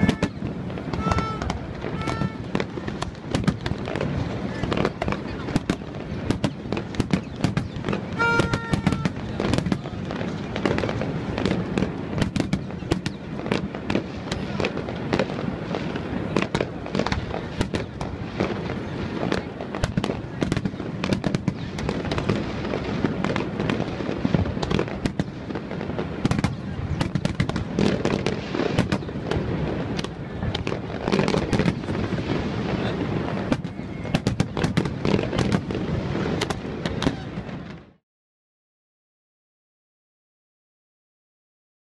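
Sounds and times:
fireworks bangs and crackling: 0.0 - 38.0.

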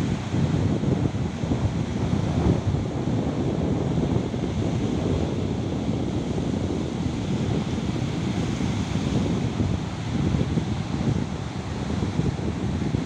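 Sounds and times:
waves washing ashore: 0.0 - 13.0
wind buffeting microphone: 0.0 - 13.0.

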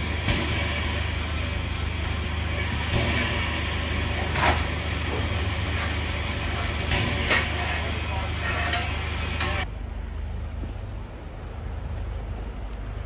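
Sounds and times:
sharp bursts of steam hiss: 0.0 - 9.6
steam hissing: 0.0 - 9.6.

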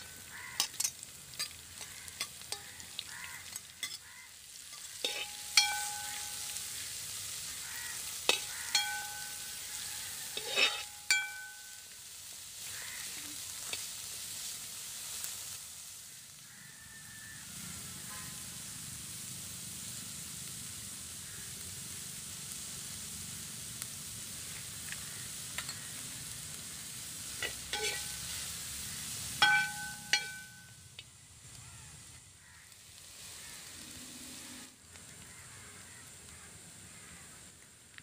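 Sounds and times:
onions sizzling in oil: 0.0 - 38.0
ladle stirring: 4.7 - 6.8, 10.4 - 11.6, 27.4 - 28.4
ladle clinking against pan: 5.0 - 6.6, 8.3 - 9.5, 10.4 - 11.8, 27.4 - 28.2, 29.4 - 30.7.

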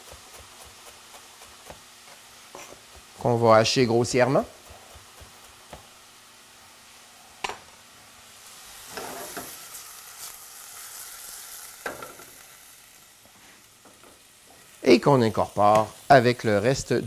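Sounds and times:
food sizzling in a saucepan: 0.0 - 17.0
pan scraping and clanking: 8.9 - 9.6.

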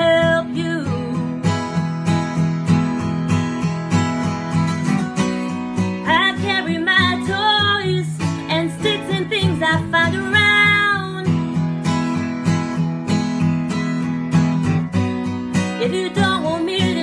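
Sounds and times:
woman singing: 0.0 - 1.8, 5.8 - 11.5, 15.6 - 17.0
acoustic guitar strumming: 0.0 - 17.0.

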